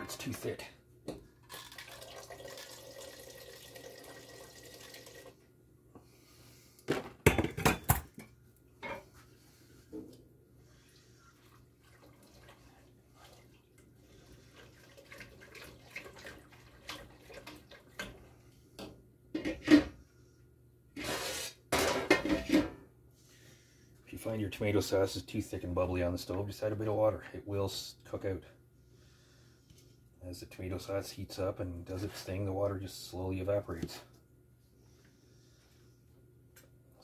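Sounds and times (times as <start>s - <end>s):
water running from tap: 1.4s - 5.3s, 11.8s - 13.7s, 14.5s - 17.9s
pots and dishes clattering: 6.9s - 9.1s, 18.8s - 20.0s, 21.1s - 22.8s.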